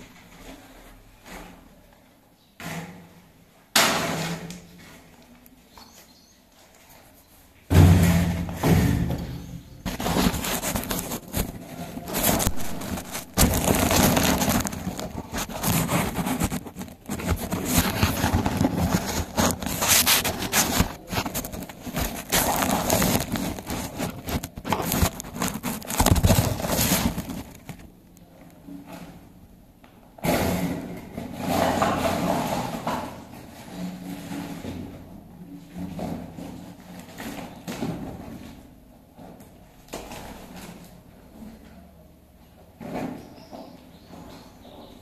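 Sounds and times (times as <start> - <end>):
fingers rubbing over microphone: 9.2 - 27.8.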